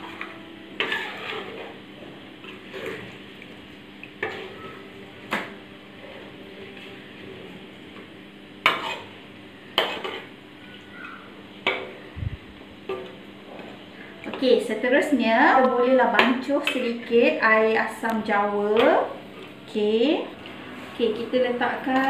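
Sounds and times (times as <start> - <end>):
metal ladle scraping a wok: 0.8 - 1.8, 8.7 - 9.1.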